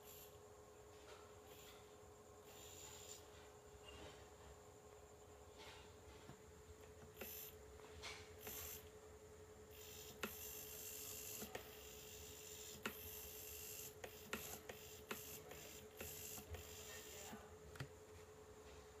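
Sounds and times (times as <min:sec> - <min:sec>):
servo whirring buzz: 0:02.4 - 0:03.3, 0:07.1 - 0:07.6, 0:08.4 - 0:08.9, 0:09.7 - 0:17.3.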